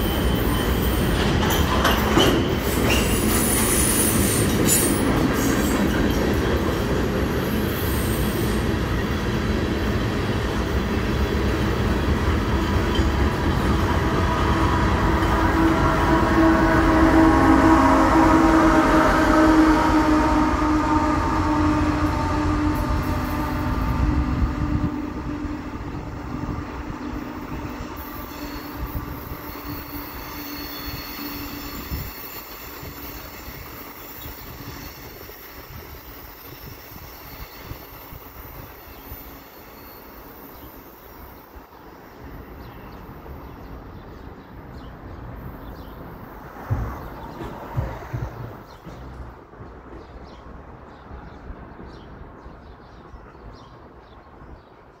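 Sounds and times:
diesel locomotive engine drone: 0.0 - 39.2
low rail rumble: 0.0 - 39.6.

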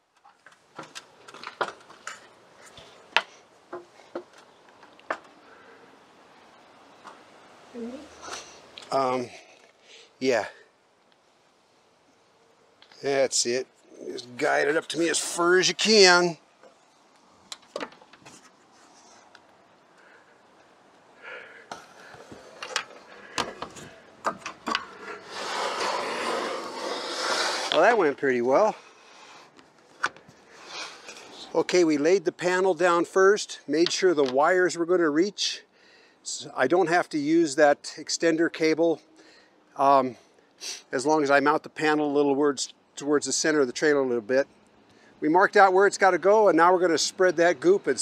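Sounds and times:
panel scraping across roof: 21.7 - 28.2.

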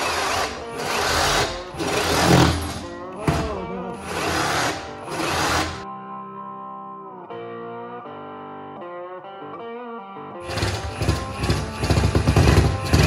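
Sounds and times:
reciprocating saw cutting wood: 0.0 - 2.9, 4.0 - 5.8, 10.4 - 13.0
background guitar music: 0.0 - 13.0.

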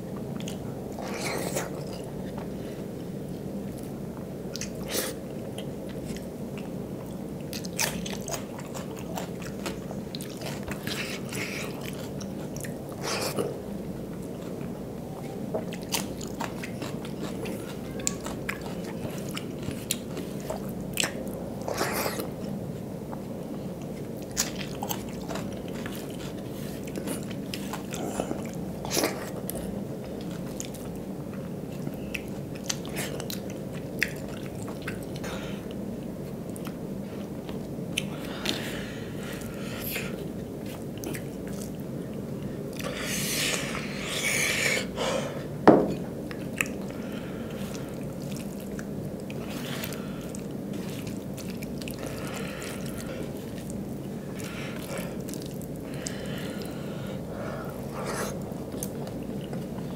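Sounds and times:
steady low hum: 0.0 - 59.9
man chewing and lip smacking: 15.6 - 22.3, 23.1 - 38.6, 45.9 - 56.7, 57.8 - 59.9.

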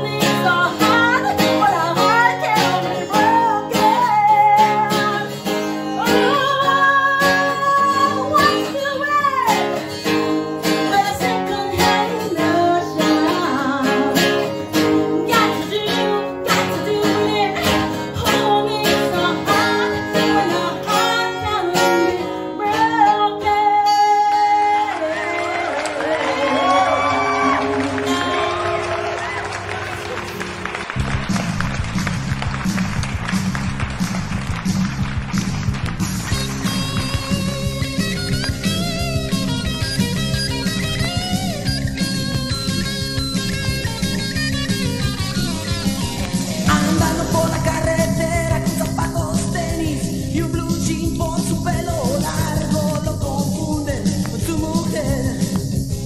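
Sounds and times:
woman singing: 0.0 - 28.7, 46.6 - 55.8
pop-rock band with guitar: 0.0 - 29.5, 30.2 - 56.0.

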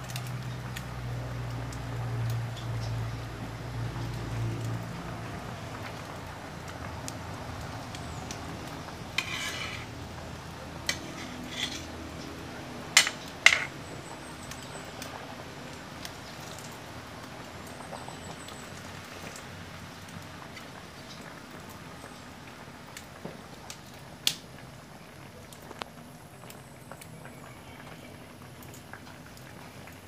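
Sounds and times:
simmering pot hiss: 0.0 - 30.0
metal spatula scraping a wok: 9.1 - 10.0, 10.8 - 12.1.

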